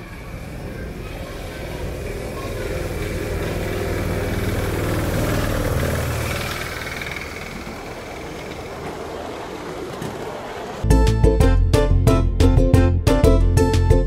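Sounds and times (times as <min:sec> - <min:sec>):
toy train rumbling past: 0:00.0 - 0:10.9.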